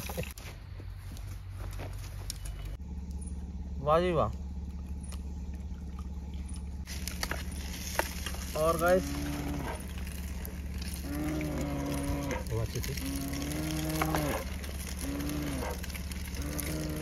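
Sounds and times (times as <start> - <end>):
animal calling: 8.5 - 17.0.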